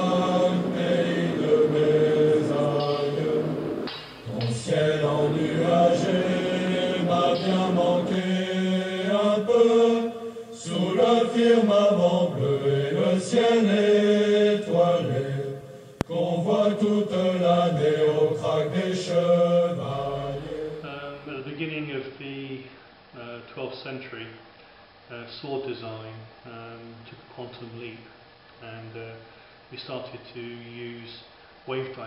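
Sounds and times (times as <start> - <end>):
voices chanting long notes: 0.0 - 21.3.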